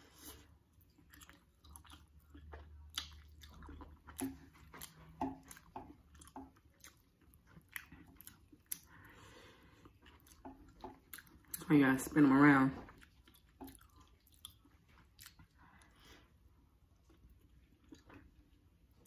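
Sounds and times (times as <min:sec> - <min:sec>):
wet chewing mouth clicks: 0:01.0 - 0:09.0.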